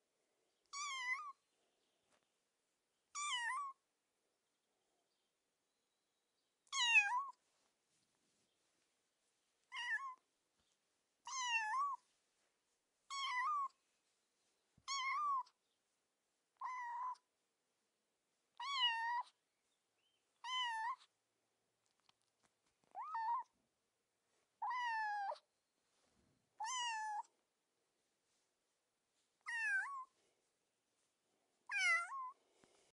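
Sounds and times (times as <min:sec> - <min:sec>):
kitten meowing: 0:00.7 - 0:01.3, 0:03.2 - 0:03.8, 0:06.7 - 0:07.4, 0:09.7 - 0:10.2, 0:11.3 - 0:12.0, 0:13.1 - 0:13.7, 0:14.9 - 0:15.5, 0:16.6 - 0:17.2, 0:18.6 - 0:19.4, 0:20.4 - 0:21.1, 0:22.9 - 0:23.5, 0:24.6 - 0:25.4, 0:26.6 - 0:27.3, 0:29.5 - 0:30.1, 0:31.7 - 0:32.4.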